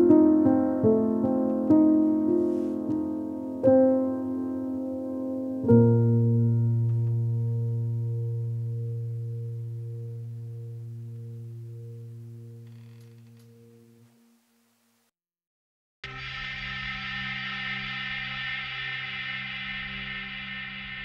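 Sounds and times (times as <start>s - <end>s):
piano chords: 0.0s - 14.4s.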